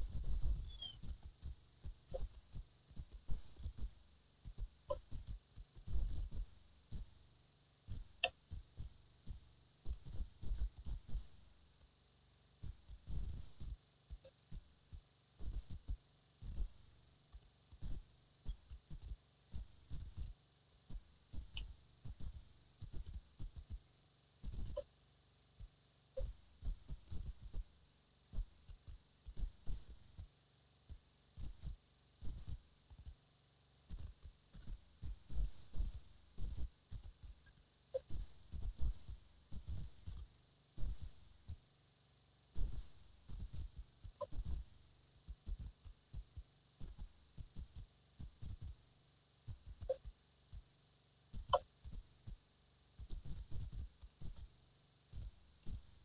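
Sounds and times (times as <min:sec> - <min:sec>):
faint steady hiss: 0:00.0 - 0:56.0
high-pitched chirps: 0:00.7 - 0:01.0.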